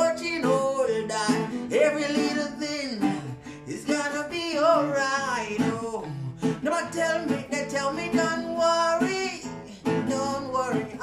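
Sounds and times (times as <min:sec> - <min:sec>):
acoustic guitar strumming: 0:00.0 - 0:11.0
man singing: 0:00.0 - 0:11.0.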